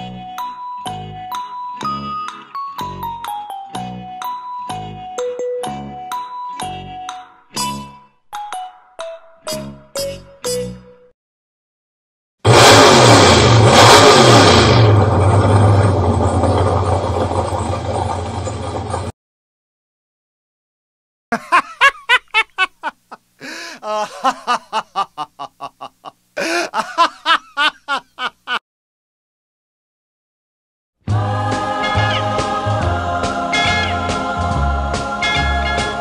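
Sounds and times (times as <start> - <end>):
hot rod engine revving: 12.5 - 19.1
person laughing heartily: 21.3 - 28.6.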